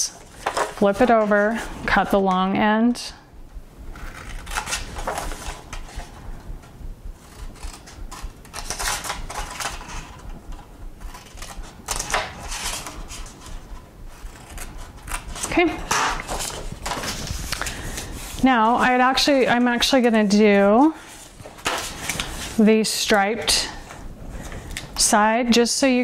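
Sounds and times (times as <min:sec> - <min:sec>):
paper rustling: 0:04.0 - 0:06.2, 0:11.0 - 0:18.9, 0:21.0 - 0:22.6
scissors snipping paper: 0:07.3 - 0:09.8.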